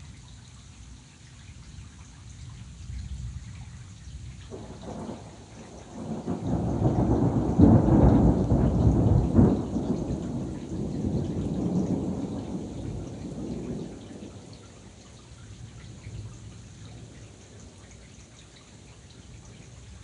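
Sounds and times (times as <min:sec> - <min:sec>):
steady rain: 0:00.0 - 0:20.0
thunder rolling: 0:04.5 - 0:14.6.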